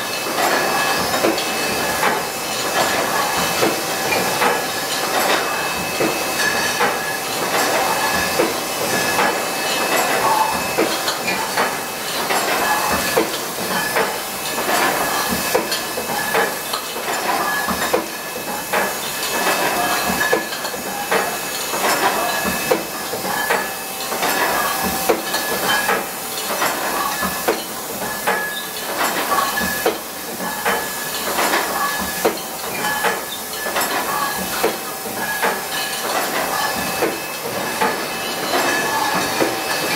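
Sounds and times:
glass bottles clinking: 31.2s - 37.1s.

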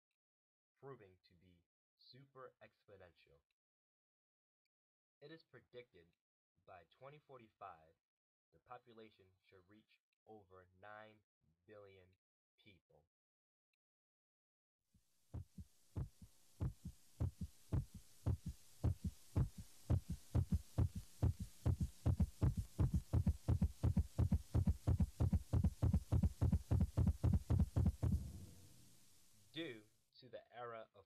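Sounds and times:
heartbeat-like low thumps: 15.4s - 28.6s
faint hiss: 15.5s - 30.8s.

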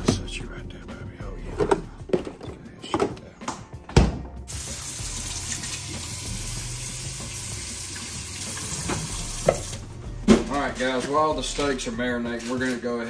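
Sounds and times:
faucet running into metal sink: 4.5s - 9.8s.

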